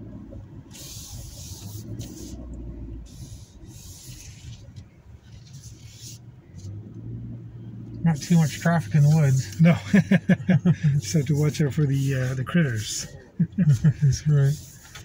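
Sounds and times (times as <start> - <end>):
car engine and road rumble: 0.0 - 15.0
hiss: 0.7 - 2.4, 3.1 - 4.5.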